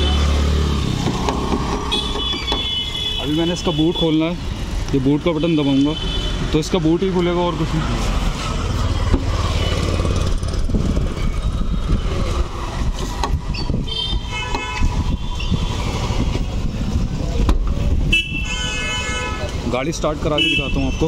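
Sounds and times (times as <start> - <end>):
street traffic rumbling: 0.0 - 21.0
vehicle horn honking: 1.9 - 4.1, 13.9 - 15.6, 18.1 - 19.5, 20.4 - 21.0.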